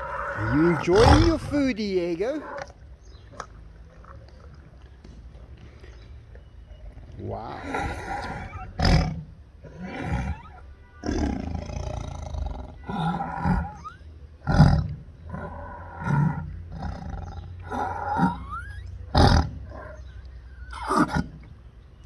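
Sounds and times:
tiger roaring: 0:00.0 - 0:01.7, 0:02.3 - 0:02.7, 0:06.9 - 0:20.0.

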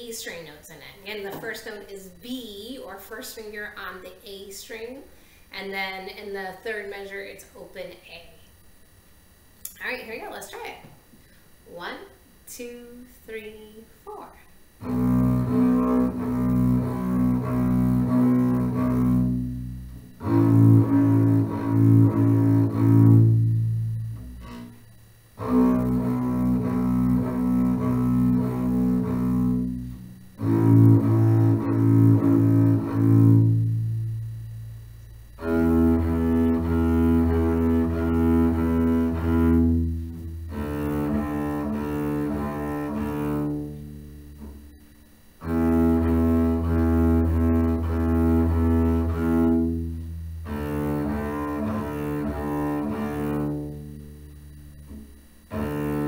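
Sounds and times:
bowed double bass notes: 0:14.8 - 0:56.0.

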